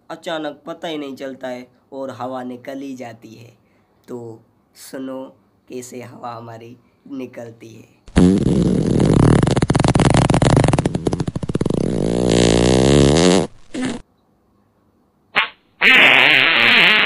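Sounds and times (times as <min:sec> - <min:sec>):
loud fluttering fart: 0:08.1 - 0:14.0, 0:15.4 - 0:17.0.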